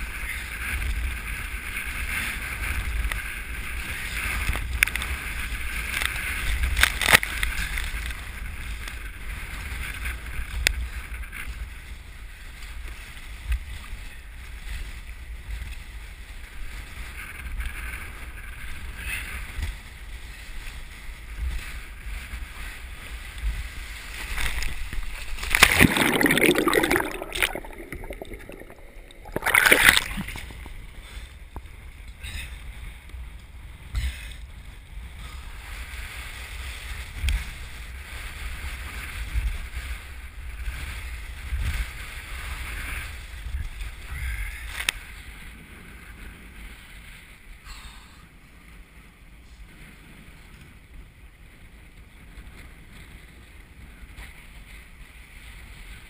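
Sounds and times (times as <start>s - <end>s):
wind buffeting microphone: 0.0s - 47.6s
choppy water splashing: 20.9s - 31.9s.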